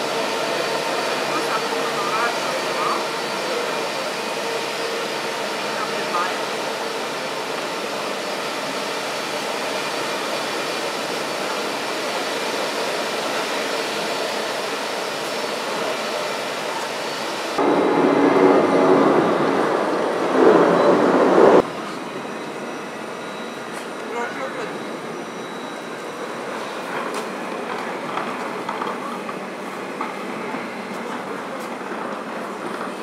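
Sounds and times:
jet engines droning: 0.0 - 33.0
steady droning tones: 17.6 - 21.7.

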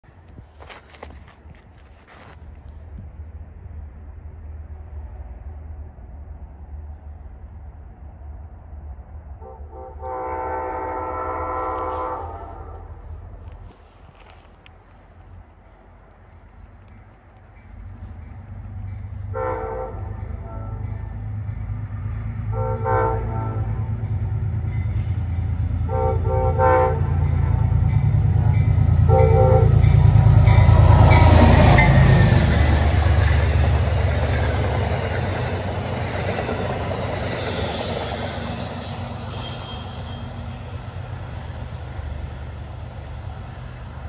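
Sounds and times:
train horn blasts: 9.4 - 13.1, 19.3 - 21.4, 22.4 - 25.2, 25.8 - 32.5, 38.1 - 40.5
train wheels clattering on rails: 16.6 - 40.4.

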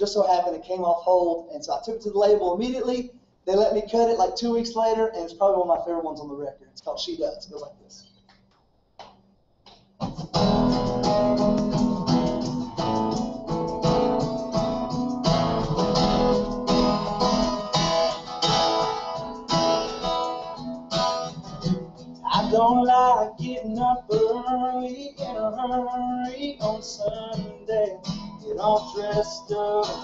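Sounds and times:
acoustic guitars strummed and picked: 10.0 - 30.0.

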